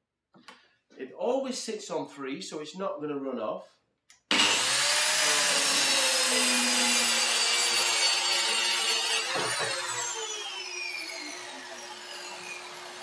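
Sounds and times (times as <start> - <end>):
circular saw cutting wood: 4.3 - 13.0
knock: 9.3 - 9.8.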